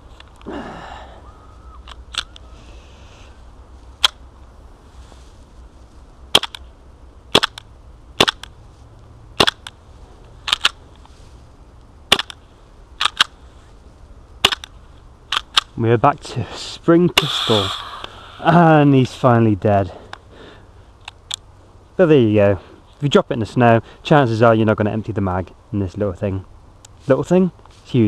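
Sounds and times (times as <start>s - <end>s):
airsoft pistol shots: 7.3s - 7.6s, 8.2s - 8.4s.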